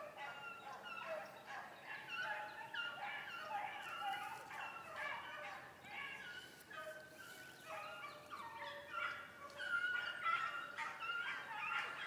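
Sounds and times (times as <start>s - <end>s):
hounds baying: 0.0s - 12.0s.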